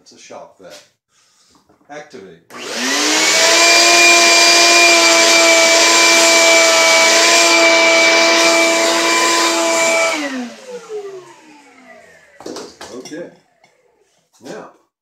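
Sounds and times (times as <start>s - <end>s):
shop vac running: 2.5s - 14.2s.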